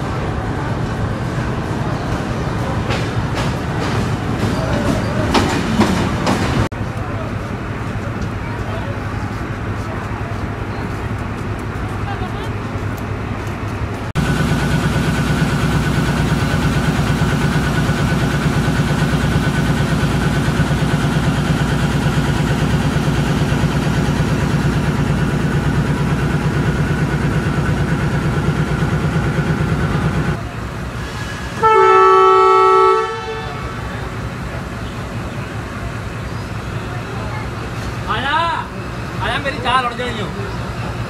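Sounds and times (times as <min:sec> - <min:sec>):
diesel locomotive engine running: 0:00.0 - 0:41.0
locomotive air horn blast: 0:31.1 - 0:34.0.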